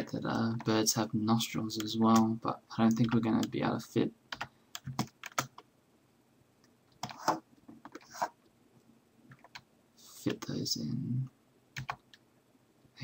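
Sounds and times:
keyboard keys clicking: 4.3s - 5.6s, 11.8s - 12.1s.

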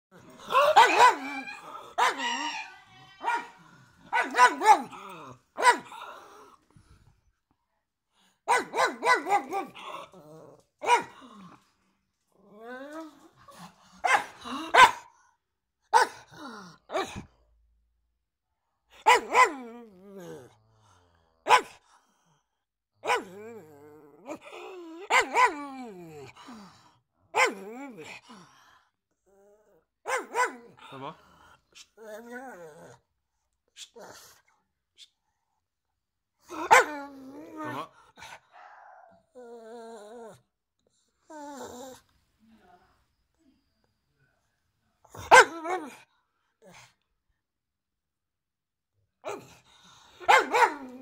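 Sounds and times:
dog barking: 0.5s - 5.0s, 5.6s - 6.0s, 8.5s - 9.8s, 10.8s - 11.2s, 14.0s - 15.1s, 15.9s - 16.3s, 19.0s - 19.6s, 21.5s - 21.8s, 23.0s - 23.4s, 25.1s - 25.6s, 27.4s - 27.7s, 30.0s - 30.8s, 36.6s - 37.0s, 38.5s - 39.2s, 45.2s - 45.9s, 50.2s - 51.0s.

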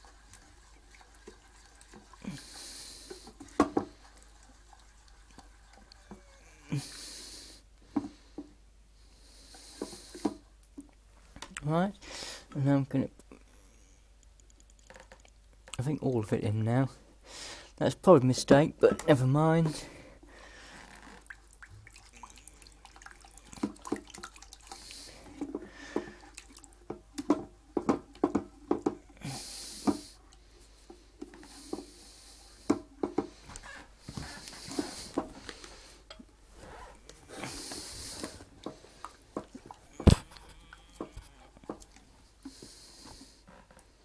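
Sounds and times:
liquid sloshing: 0.0s - 6.6s, 19.7s - 32.0s, 32.7s - 42.1s.

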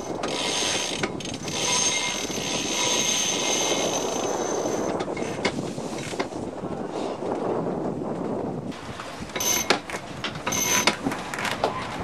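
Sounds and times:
winch whining: 0.0s - 6.2s, 10.4s - 11.0s
wind on microphone: 0.0s - 12.0s.

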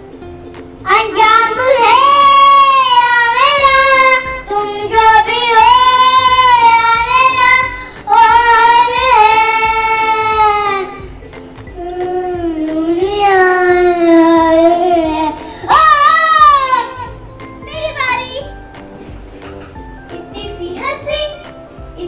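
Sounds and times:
child singing high notes: 0.9s - 11.1s, 11.8s - 18.4s
child breathing: 7.8s - 8.1s, 15.4s - 15.7s.

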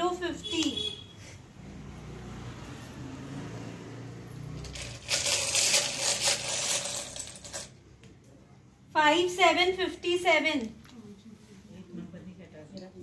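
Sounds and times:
low background murmur: 6.5s - 13.0s.

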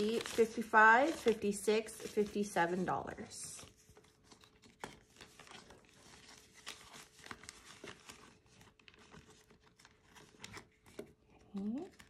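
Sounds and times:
paper and plastic rustling: 0.0s - 12.0s.

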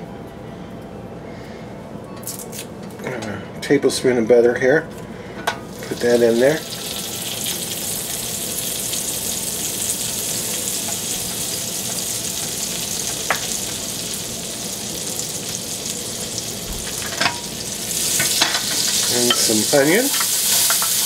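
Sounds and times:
butter sizzling in oil: 5.7s - 21.0s.

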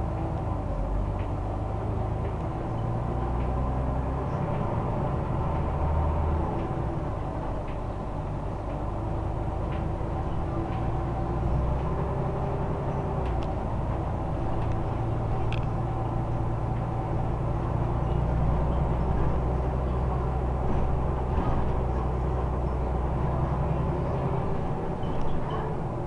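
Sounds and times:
bus engine drone: 0.0s - 26.0s.

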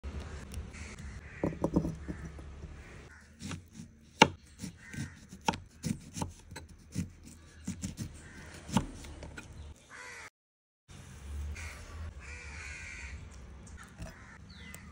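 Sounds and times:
knife chopping on wooden board: 3.4s - 9.4s.

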